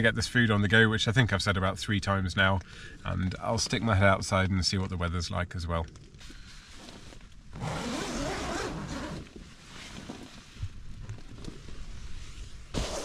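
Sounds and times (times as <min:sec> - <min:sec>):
nylon fabric rustling: 0:06.5 - 0:13.0
tent zip pulled open: 0:06.6 - 0:10.7, 0:11.6 - 0:13.0.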